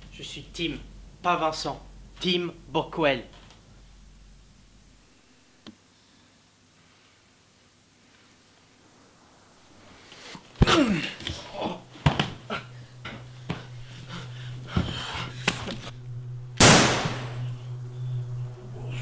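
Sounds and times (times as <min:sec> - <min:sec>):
loud hit sweeping down in pitch: 0:16.6 - 0:17.4.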